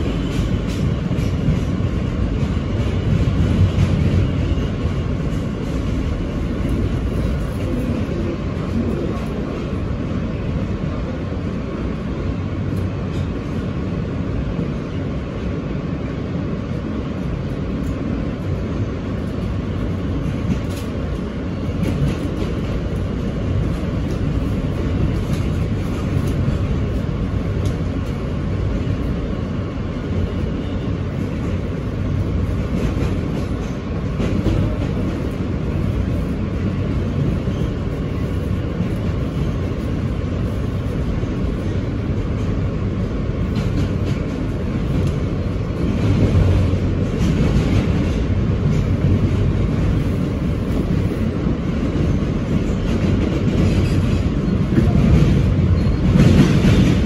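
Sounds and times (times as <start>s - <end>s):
subway car rumbling: 0.0s - 57.0s.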